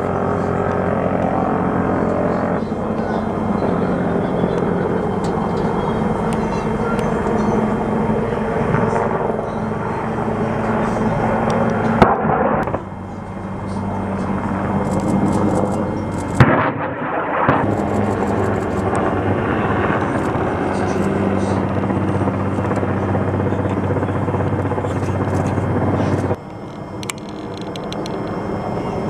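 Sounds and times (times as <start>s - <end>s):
helicopter engine and rotor: 0.0s - 29.0s
sharp bangs: 11.8s - 12.9s, 16.1s - 21.5s.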